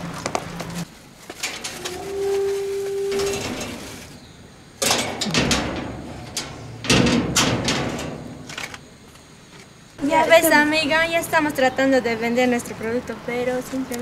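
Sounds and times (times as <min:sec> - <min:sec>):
sheet metal door rattling: 0:03.1 - 0:04.2, 0:04.8 - 0:08.8.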